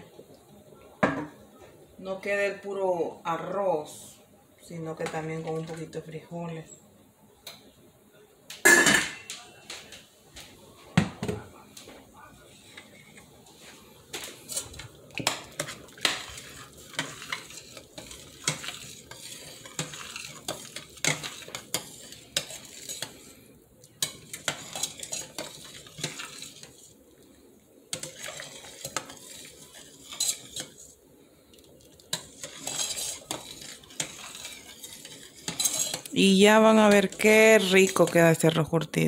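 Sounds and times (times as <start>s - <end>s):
metal ladle scraping a pot: 14.4s - 23.4s, 24.0s - 27.0s, 27.9s - 31.0s, 32.1s - 38.1s.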